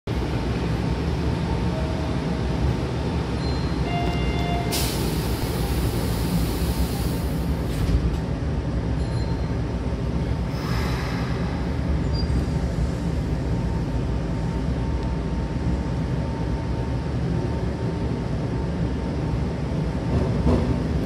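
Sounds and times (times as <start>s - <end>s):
train humming: 0.1s - 21.0s
train doors hissing shut: 4.2s - 8.2s.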